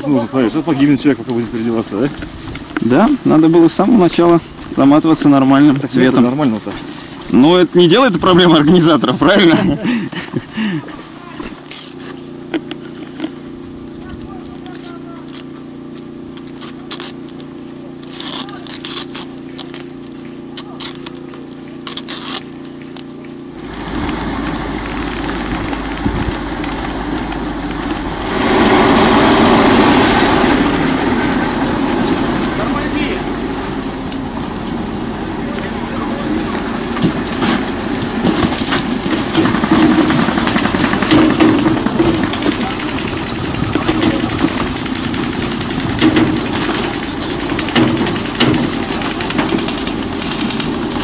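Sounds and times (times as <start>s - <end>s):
truck engine running: 0.0s - 51.0s
sharp clicks: 42.2s - 50.7s.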